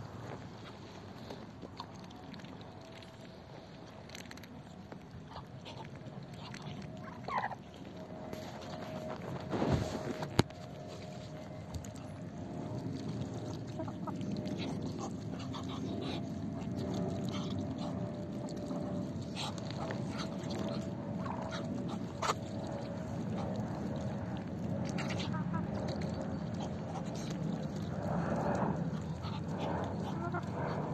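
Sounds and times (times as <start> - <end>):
birds pecking at ground: 0.0 - 30.9
hens clucking: 13.5 - 17.5, 25.0 - 27.7, 28.5 - 30.9.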